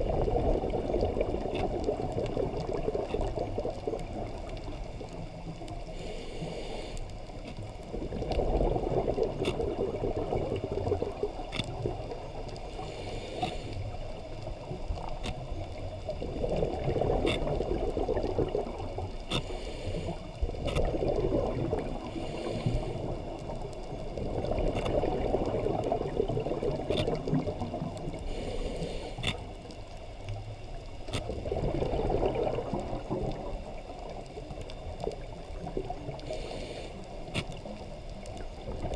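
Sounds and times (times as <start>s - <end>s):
exhaled bubbles gushing: 0.0s - 5.1s, 7.8s - 12.5s, 16.0s - 19.2s, 20.5s - 28.2s, 31.2s - 36.3s
scuba regulator breathing underwater: 5.9s - 7.2s, 12.6s - 14.0s, 19.3s - 20.4s, 21.3s - 23.3s, 28.1s - 29.6s, 36.1s - 37.8s.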